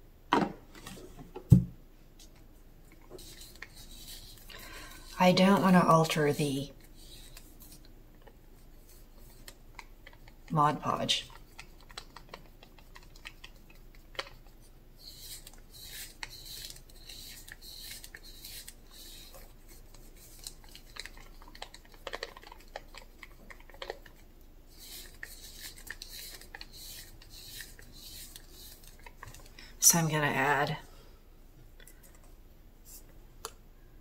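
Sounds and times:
stick scraping paint in plastic cup: 0:03.1 - 0:07.9, 0:08.8 - 0:29.5.

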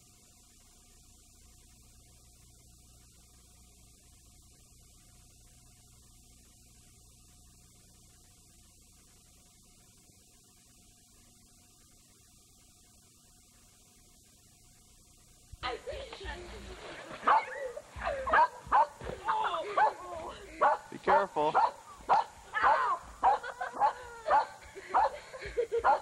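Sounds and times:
faint electrical hum: 0:00.0 - 0:26.0
tape hiss: 0:00.0 - 0:26.0.

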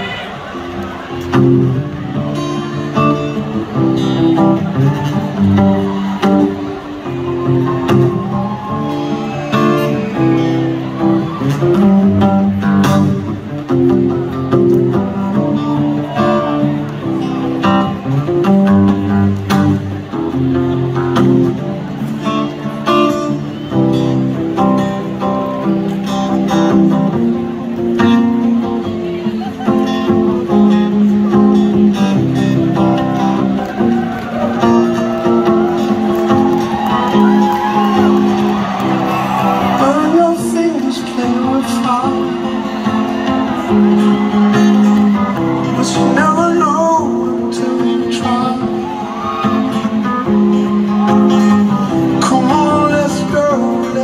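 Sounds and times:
acoustic guitar through speakers: 0:00.0 - 0:54.0
man singing: 0:39.7 - 0:42.7, 0:45.6 - 0:50.6, 0:51.2 - 0:54.0.

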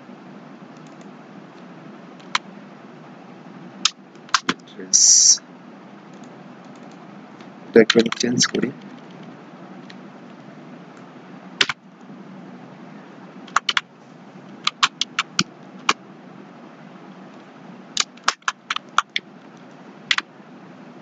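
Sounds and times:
low steady hum: 0:00.0 - 0:21.0
computer keyboard typing: 0:00.8 - 0:01.1, 0:02.2 - 0:02.4, 0:04.3 - 0:05.3, 0:06.1 - 0:07.0, 0:07.8 - 0:09.2, 0:13.5 - 0:13.9, 0:14.6 - 0:16.0, 0:18.0 - 0:20.3.

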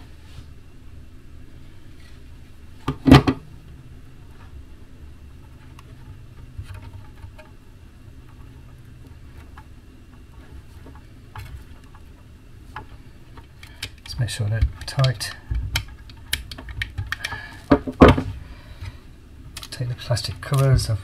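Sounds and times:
clicks and rustles of wires: 0:05.2 - 0:21.0
loud clatter of hard knocks: 0:17.7 - 0:18.4.

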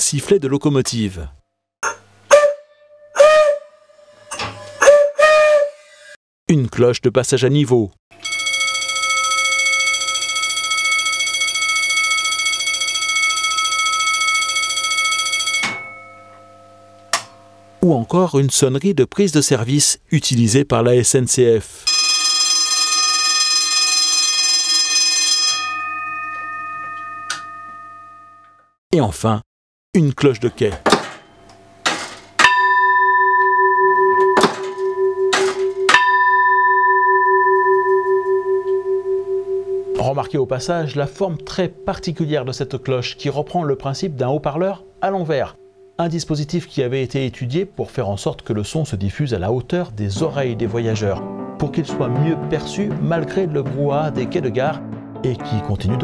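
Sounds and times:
level crossing bell ringing: 0:08.2 - 0:17.5, 0:21.9 - 0:28.6, 0:32.4 - 0:46.0.

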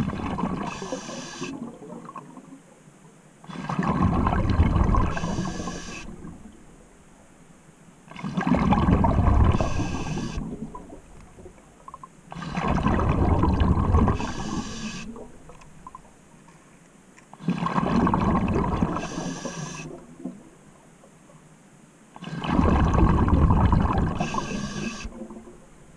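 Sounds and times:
diver exhaling bubbles underwater: 0:00.0 - 0:02.4, 0:03.4 - 0:06.5, 0:08.1 - 0:11.6, 0:12.3 - 0:15.5, 0:17.4 - 0:20.4, 0:22.2 - 0:25.6.

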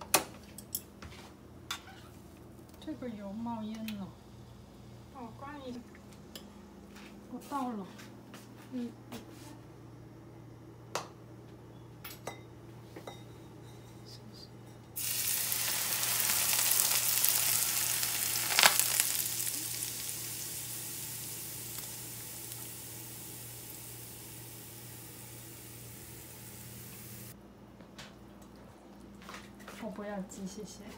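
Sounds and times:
hot oil sizzling: 0:15.0 - 0:27.4.

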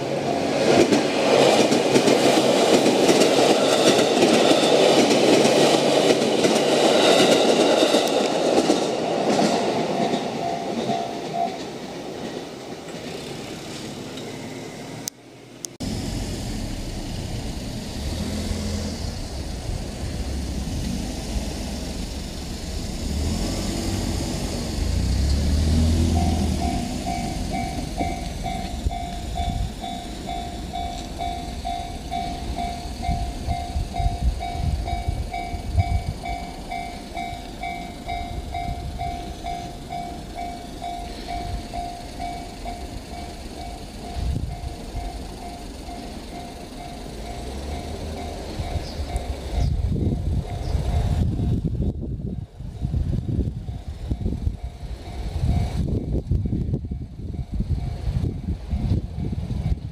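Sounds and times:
train low rumble: 0:00.0 - 0:59.9
train running over crossing: 0:00.0 - 0:59.9
crossing bell ringing: 0:09.6 - 0:12.4, 0:25.8 - 0:59.9.

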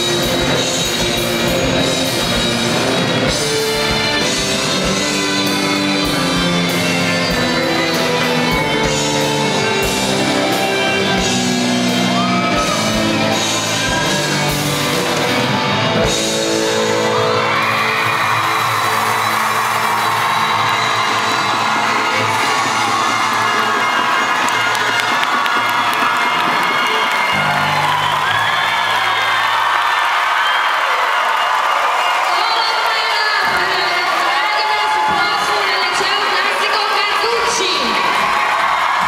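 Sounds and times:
drums keeping steady beat: 0:00.0 - 0:28.3
live rock band: 0:00.0 - 0:29.6
crowd cheering: 0:00.0 - 0:39.0.

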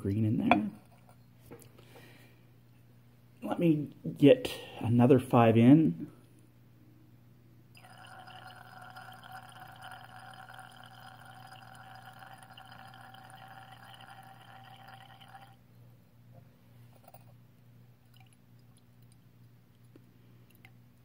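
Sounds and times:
liquid trickling into glass flask: 0:07.8 - 0:15.6, 0:18.1 - 0:19.3.

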